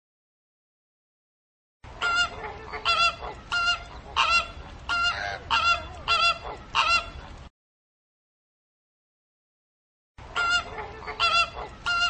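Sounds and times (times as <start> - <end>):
flamingos honking: 1.9 - 7.5, 10.2 - 12.0
another bird calling: 2.0 - 7.2.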